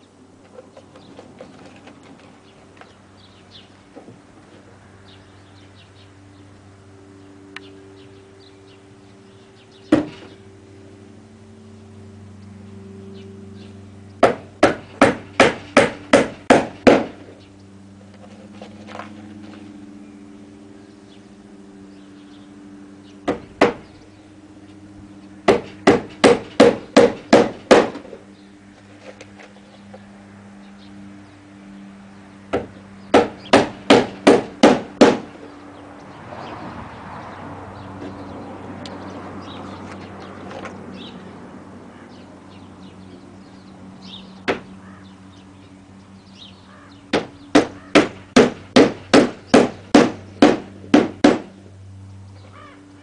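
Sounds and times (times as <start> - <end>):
hammer driving nails into wood: 14.2 - 17.1, 25.5 - 28.0, 32.5 - 35.2, 47.1 - 51.5.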